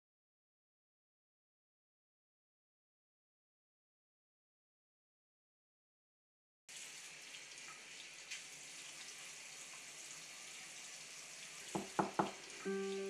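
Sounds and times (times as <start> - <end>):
sink tap running: 11.3 - 13.0
music with held notes: 12.6 - 13.0.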